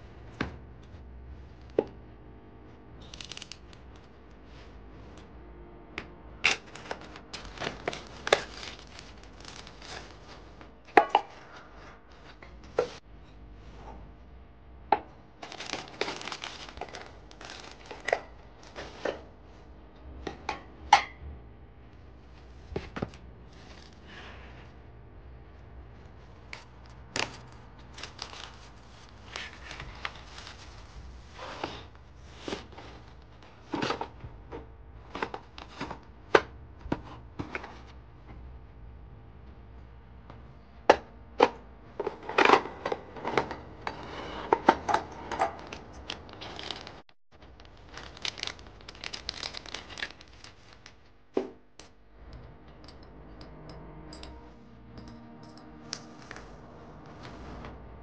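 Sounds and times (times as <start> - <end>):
plastic wrap crinkling and tearing: 3.0 - 3.6, 6.5 - 10.6, 15.4 - 19.1, 27.1 - 31.0, 45.6 - 51.0
knife slitting plastic wrap: 6.5 - 10.3, 15.4 - 18.3, 47.8 - 50.8.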